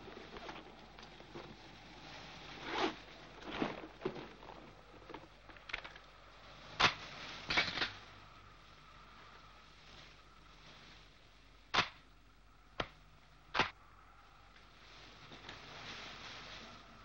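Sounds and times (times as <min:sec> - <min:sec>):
stiff paper rustling and crinkling: 0:00.0 - 0:11.5, 0:14.6 - 0:17.0.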